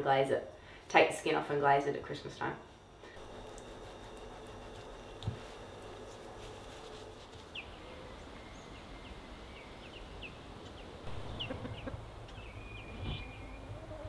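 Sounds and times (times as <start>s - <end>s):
chickens clucking: 10.6s - 14.0s.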